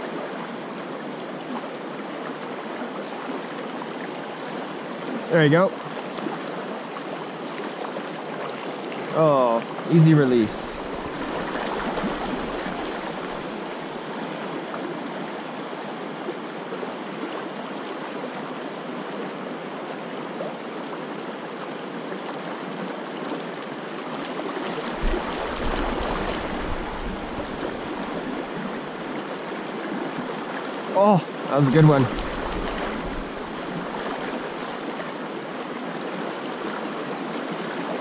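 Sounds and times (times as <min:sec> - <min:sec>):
fast river current: 0:00.0 - 0:38.0.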